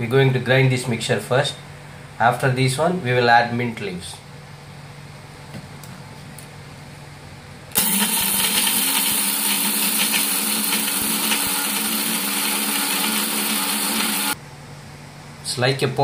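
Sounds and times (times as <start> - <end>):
mixer grinder motor whining: 7.8 - 14.4.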